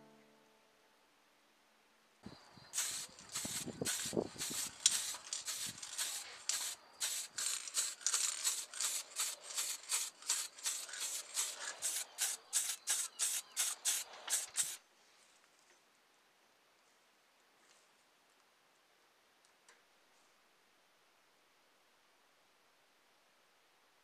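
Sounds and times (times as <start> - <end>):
spray can hissing bursts: 2.8 - 14.8.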